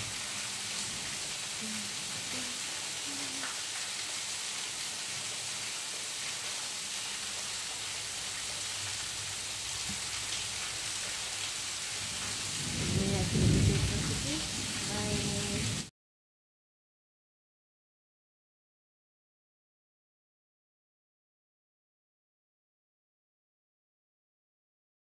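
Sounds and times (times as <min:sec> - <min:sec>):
steady rain-like hiss: 0:00.0 - 0:15.9.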